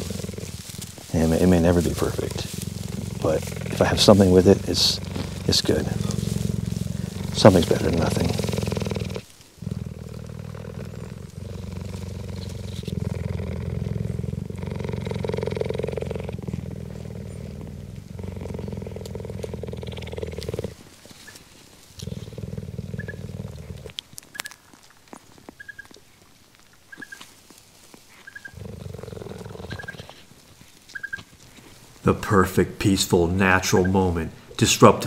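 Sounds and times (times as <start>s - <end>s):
cheetah purring: 0.0s - 24.6s, 28.0s - 35.0s.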